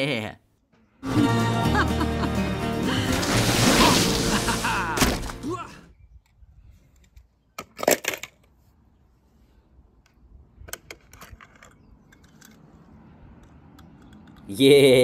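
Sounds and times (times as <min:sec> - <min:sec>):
toy cars clicking and knocking: 0:07.0 - 0:08.5, 0:10.6 - 0:14.7.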